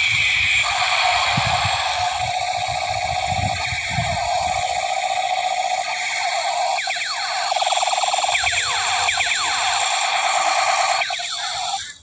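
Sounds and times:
warbling electronic tone: 0:00.0 - 0:12.0.

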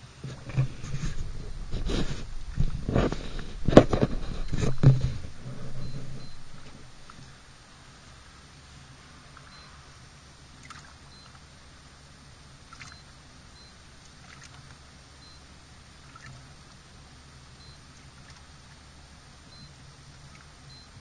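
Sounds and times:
faint steady low hum: 0:00.0 - 0:21.0
soft splashes: 0:10.6 - 0:11.0, 0:12.7 - 0:13.0, 0:14.0 - 0:14.8, 0:16.0 - 0:16.8
water lapping against boat hull: 0:12.7 - 0:13.0, 0:14.0 - 0:14.8, 0:16.0 - 0:16.8, 0:17.9 - 0:18.8.

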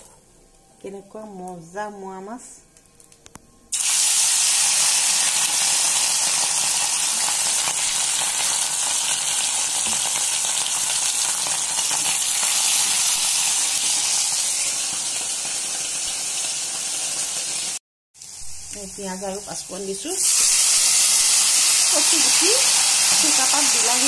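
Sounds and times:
fish sizzling in hot oil: 0:03.7 - 0:24.0.

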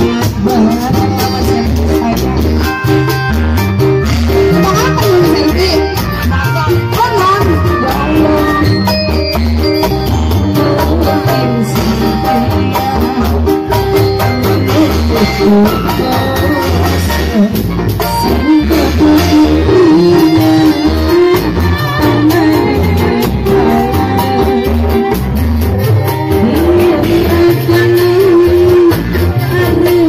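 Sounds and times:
backing instruments: 0:00.0 - 0:30.0
steady drum beat: 0:00.0 - 0:30.0
girl singing over loudspeakers: 0:26.4 - 0:30.0.

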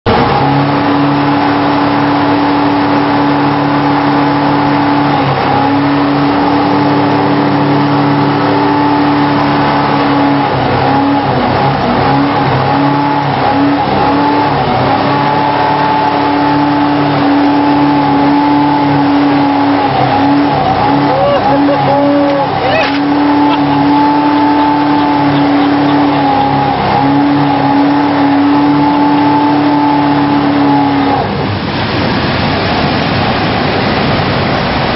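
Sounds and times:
boat engine drone with whine: 0:00.0 - 0:34.9.

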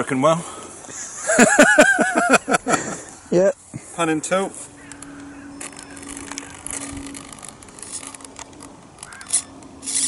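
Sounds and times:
steady low hum: 0:00.4 - 0:10.0
small servos whirring: 0:04.8 - 0:10.0.

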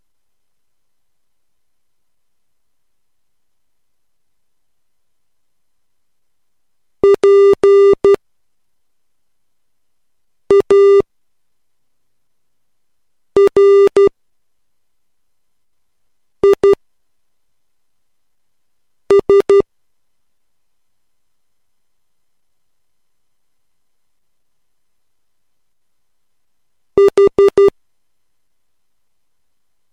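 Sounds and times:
morse code beeps: 0:07.0 - 0:08.2, 0:10.5 - 0:11.0, 0:13.4 - 0:14.1, 0:16.4 - 0:16.8, 0:19.1 - 0:19.6, 0:27.0 - 0:27.7.

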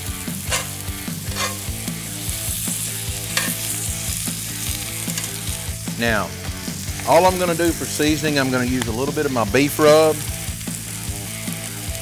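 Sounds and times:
vegetables sizzling in skillet: 0:00.0 - 0:12.0
metal tongs clacking against pan: 0:00.4 - 0:01.8, 0:03.3 - 0:03.8, 0:05.1 - 0:05.4, 0:09.8 - 0:10.2.

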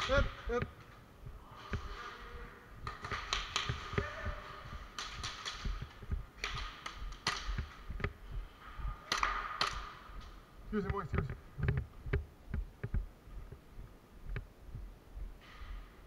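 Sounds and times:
faint steady hum: 0:00.0 - 0:16.0
sharp clicks and taps: 0:02.8 - 0:08.4, 0:09.1 - 0:13.6, 0:14.2 - 0:14.9.

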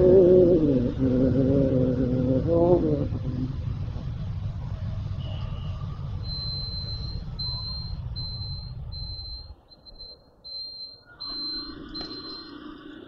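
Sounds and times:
low rumble: 0:00.0 - 0:09.5
electronic beeper beeping: 0:06.2 - 0:13.0.

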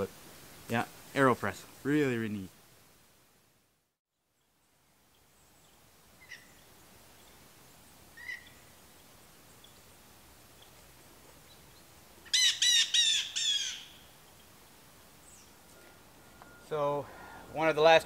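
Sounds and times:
faint bird chirps: 0:04.2 - 0:08.8, 0:15.2 - 0:17.4
harsh bird calls: 0:08.2 - 0:08.6, 0:12.3 - 0:14.1.

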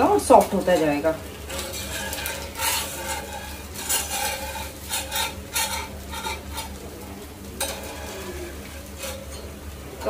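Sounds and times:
crackling bursts: 0:00.0 - 0:10.0
pancake sizzling on hot griddle: 0:00.0 - 0:10.0.

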